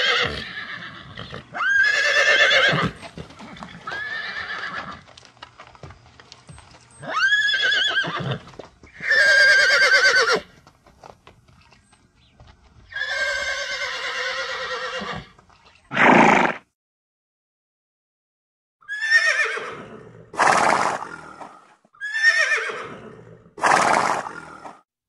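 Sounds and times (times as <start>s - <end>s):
horses neighing: 0.0s - 5.2s, 6.9s - 10.6s, 12.8s - 16.6s, 18.9s - 24.8s.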